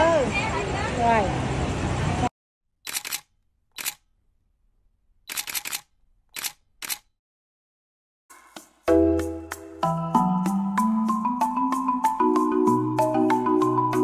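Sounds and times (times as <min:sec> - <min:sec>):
camera shutter clicks: 0:02.8 - 0:04.0, 0:05.3 - 0:07.1.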